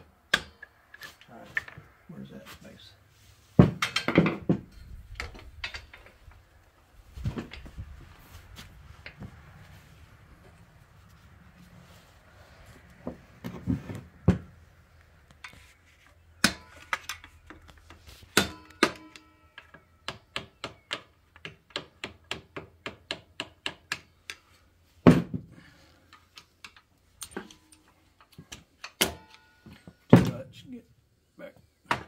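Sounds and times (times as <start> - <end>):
hammer striking metal bolt: 16.4 - 17.3, 18.3 - 21.0.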